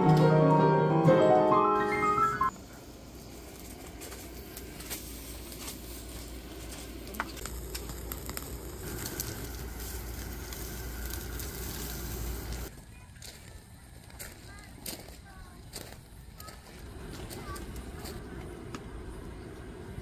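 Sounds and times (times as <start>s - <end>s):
fire crackling: 1.8s - 20.0s
steak sizzling on grill: 2.6s - 12.7s.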